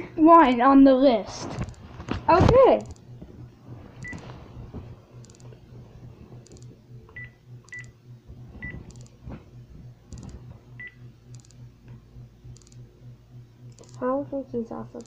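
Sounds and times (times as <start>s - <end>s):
faint low hum: 0.0s - 15.0s
phone keypad beeps: 4.0s - 4.2s, 7.2s - 7.9s.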